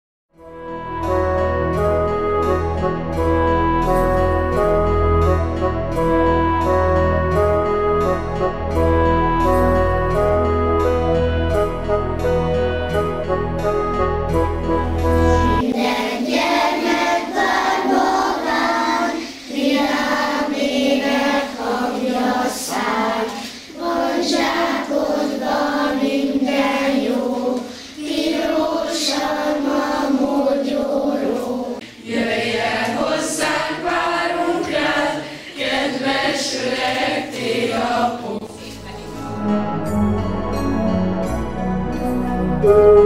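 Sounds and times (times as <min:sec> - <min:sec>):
group of voices singing: 0:15.2 - 0:39.6.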